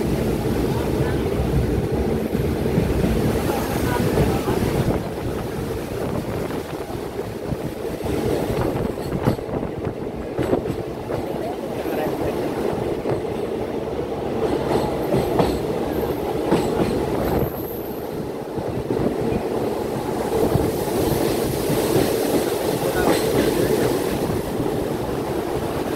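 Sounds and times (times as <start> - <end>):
train wheels rumbling: 0.0 - 25.9
wheels clacking over rail joints: 4.9 - 13.7, 14.3 - 25.9.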